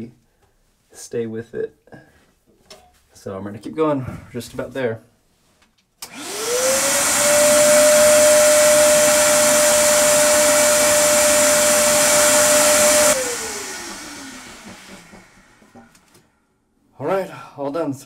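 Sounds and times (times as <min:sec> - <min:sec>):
vacuum cleaner motor whine: 0:06.0 - 0:16.2.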